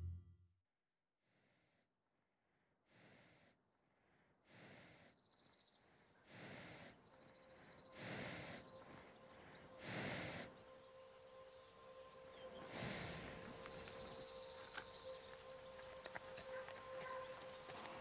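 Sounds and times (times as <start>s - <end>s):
horse breathing through nostrils: 6.3s - 7.0s, 8.0s - 8.7s.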